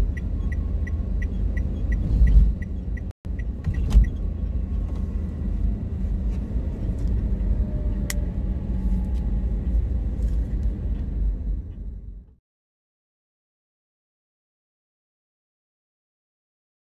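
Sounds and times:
car cabin road rumble: 0.0s - 12.4s.

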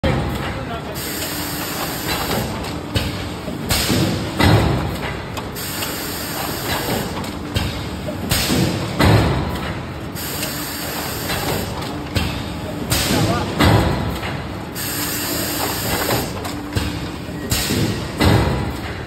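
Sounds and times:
heavy thud of forming press: 2.0s - 5.6s, 6.4s - 9.9s, 11.2s - 14.5s, 15.4s - 19.0s.

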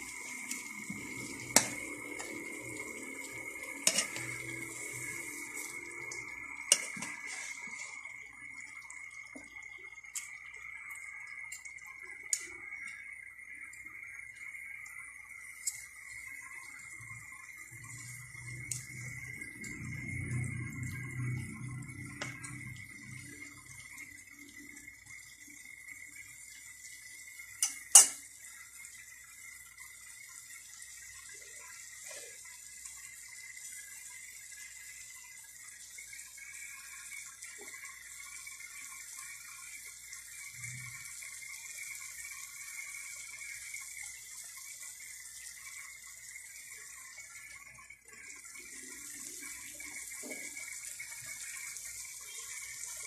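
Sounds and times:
food sizzling in a wok: 0.0s - 53.0s.

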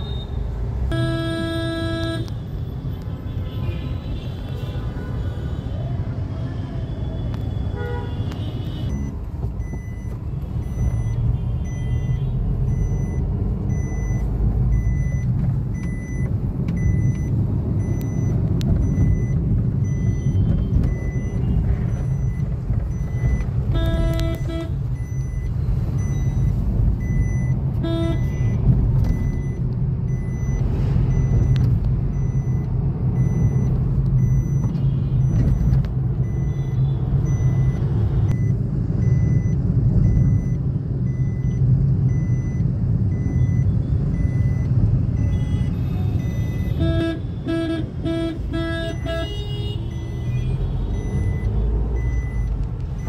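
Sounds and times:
vehicle horns honking: 0.0s - 2.3s, 7.7s - 8.9s, 23.7s - 24.8s, 27.8s - 28.3s, 45.3s - 50.9s
vehicle rumble in traffic: 0.0s - 53.0s.

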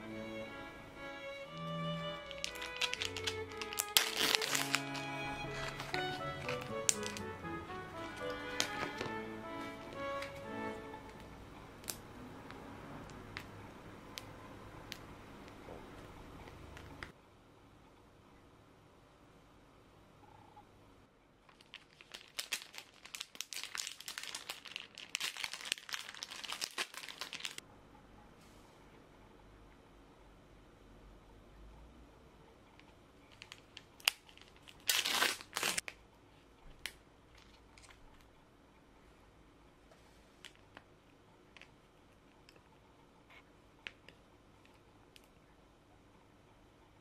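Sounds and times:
plastic wrapper crinkling: 1.6s - 10.5s, 21.4s - 27.6s, 33.3s - 36.0s, 36.8s - 38.0s.

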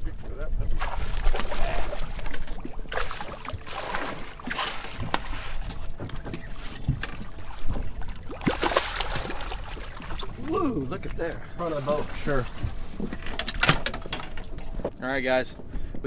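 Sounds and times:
water noise: 0.0s - 15.0s
wind: 0.0s - 16.0s
water splashes: 0.6s - 13.3s.

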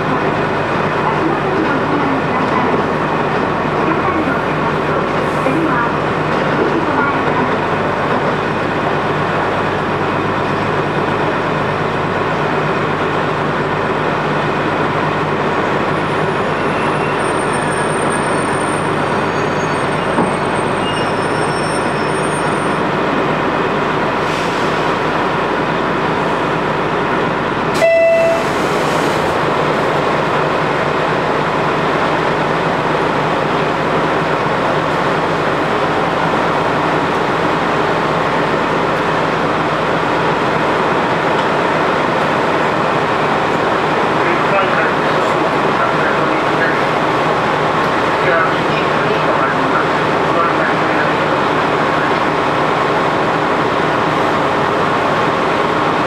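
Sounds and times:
train cabin noise with engine: 0.0s - 56.0s
short beep: 27.8s - 28.6s.

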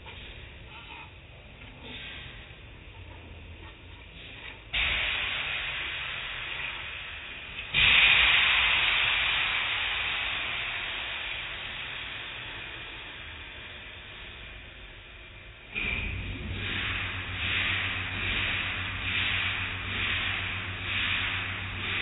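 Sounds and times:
car wash machinery rumble: 0.0s - 22.0s
high-pressure water spray hissing: 4.8s - 22.0s.

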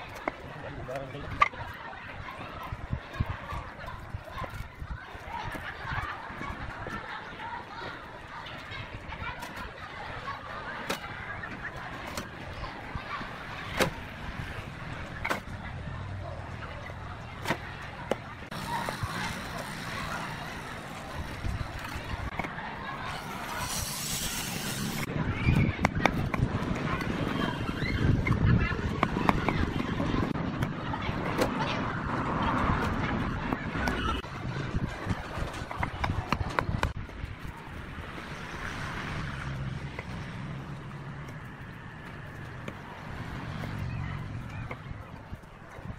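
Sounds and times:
paving blocks clacking: 32.8s - 37.8s.

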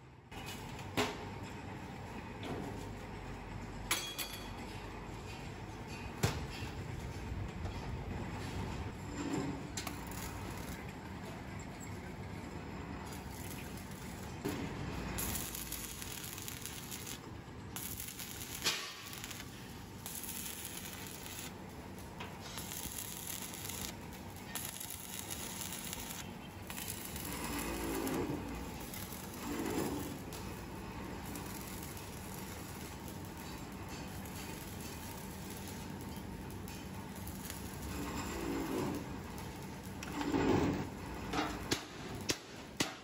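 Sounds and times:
welding arc crackling: 9.8s - 11.0s, 12.8s - 43.0s.

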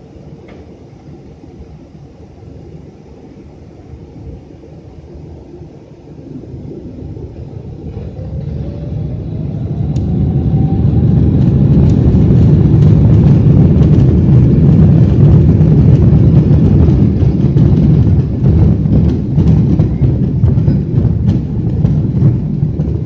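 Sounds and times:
jet engines spooling up: 0.0s - 23.0s
wheels knocking on runway: 7.8s - 23.0s.

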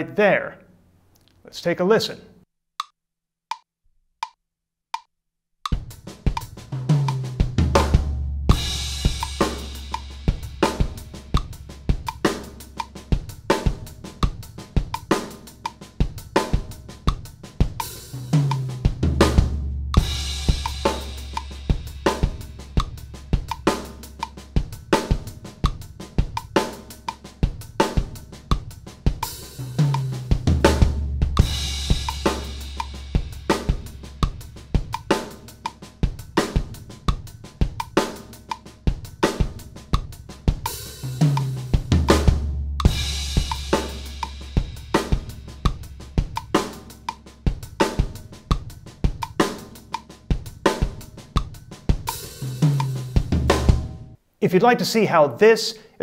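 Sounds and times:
drum kit playing: 5.7s - 54.2s
backing track bass notes: 7.0s - 14.6s, 18.3s - 25.8s, 29.6s - 35.1s, 41.2s - 47.3s, 52.4s - 54.2s.

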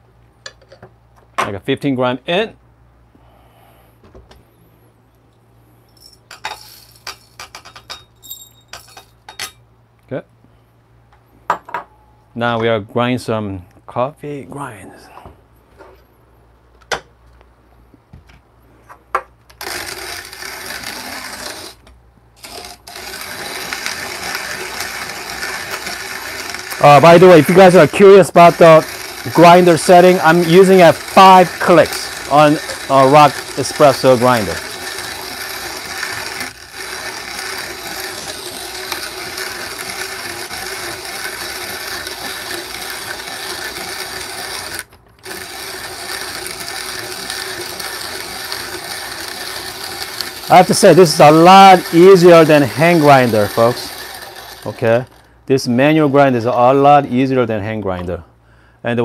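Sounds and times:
hand grinder grinding coffee beans: 6.3s - 7.9s, 19.6s - 57.3s.

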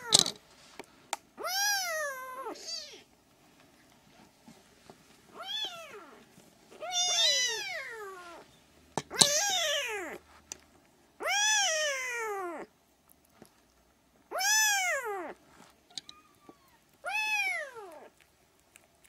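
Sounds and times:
kitten mewing: 11.2s - 12.7s, 14.3s - 15.4s, 16.0s - 18.2s.

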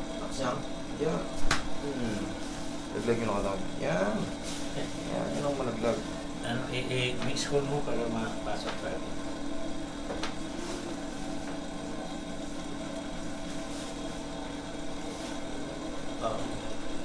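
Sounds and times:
low mechanical hum: 0.0s - 17.0s.

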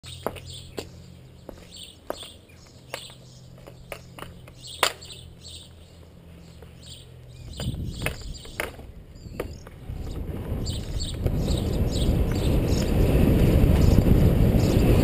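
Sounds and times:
birds chirping faintly: 0.0s - 13.2s
bike clicks and knocks: 2.1s - 5.8s, 7.5s - 11.6s.

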